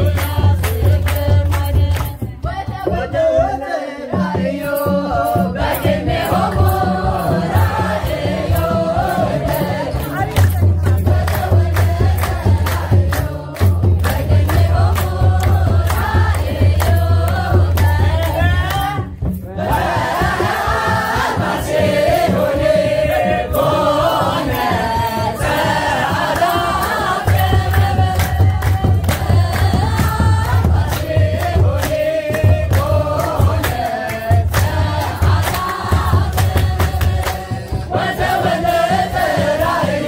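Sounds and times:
handclaps: 0.0 - 2.5, 5.6 - 19.3, 24.3 - 39.9
hand drum beat: 0.0 - 40.0
group of voices chanting: 18.8 - 40.0.

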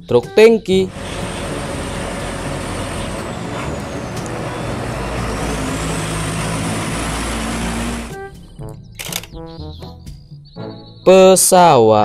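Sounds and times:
road noise: 0.7 - 8.5
truck engine rumble: 0.7 - 8.5
high whine sliding in pitch: 0.9 - 8.2.

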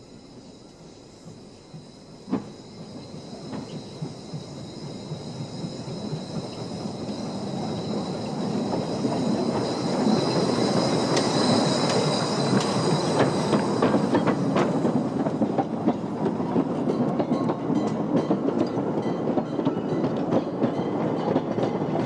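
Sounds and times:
steam locomotive passing: 0.0 - 22.0
high-pitched squeal: 2.0 - 15.2.

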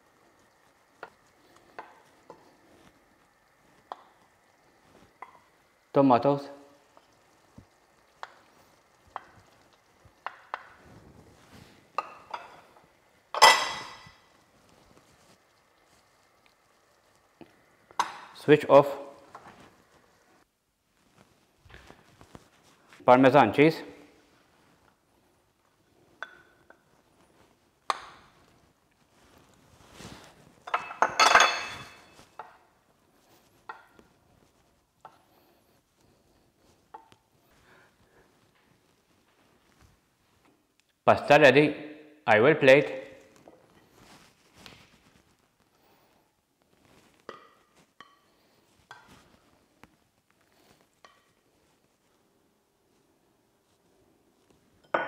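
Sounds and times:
faint sizzle from pan: 0.0 - 41.0, 42.0 - 55.0
spoon tapping in frying pan: 0.6 - 2.5, 3.8 - 4.4, 5.1 - 5.6, 6.8 - 10.8, 11.9 - 14.2, 17.9 - 18.4, 26.2 - 26.8, 27.9 - 28.3, 33.6 - 34.1, 47.2 - 48.3
glass bowl set down clattering: 13.4 - 14.2, 30.6 - 32.2, 54.8 - 55.0.

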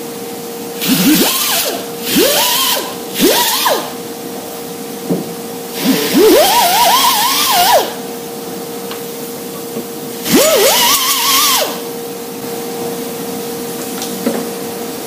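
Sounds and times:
steady background hum: 0.0 - 15.0
pneumatic grinder grinding metal: 0.8 - 4.0, 5.8 - 8.0, 10.2 - 11.9.

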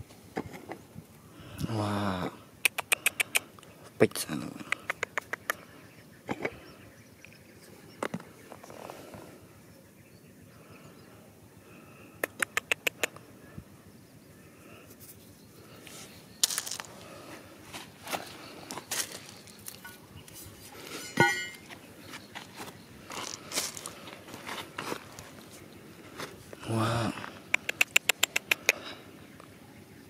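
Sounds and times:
sharp ticks: 2.6 - 3.5, 4.6 - 5.6, 12.2 - 13.2, 27.5 - 28.8
stones and rubble crunching: 16.4 - 17.2, 17.8 - 20.0
stone clink with ring: 20.9 - 21.7.

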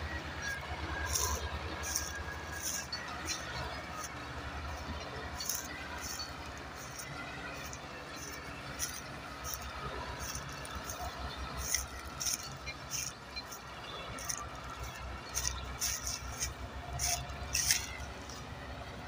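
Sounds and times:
diesel engines running under load: 0.0 - 19.0
sharp crackles and ticks: 5.4 - 18.4.

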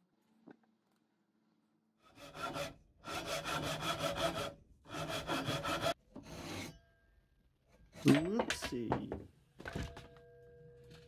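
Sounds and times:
handsaw cutting wood: 2.0 - 6.0.

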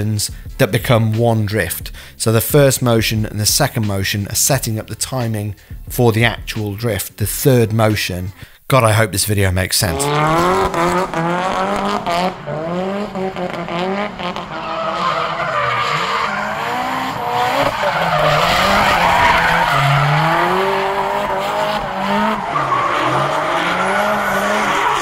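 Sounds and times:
car engine revving: 9.9 - 25.0
tyre squeal: 14.2 - 25.0.

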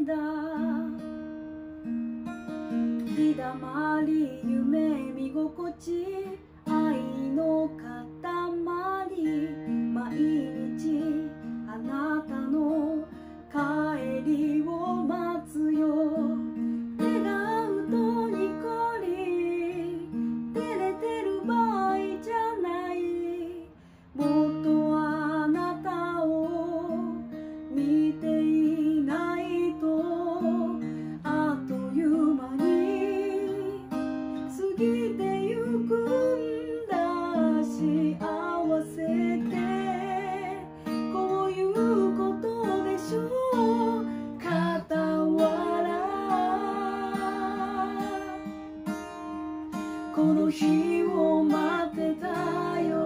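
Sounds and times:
woman singing: 0.0 - 1.5, 2.7 - 53.0
strummed acoustic guitar: 0.0 - 53.0.

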